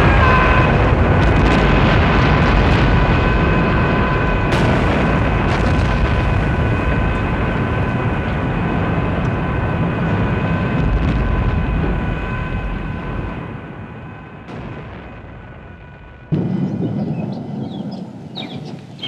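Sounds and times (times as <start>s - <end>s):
slowed explosion roar: 0.0s - 19.0s
faint whistling tones: 16.6s - 19.0s.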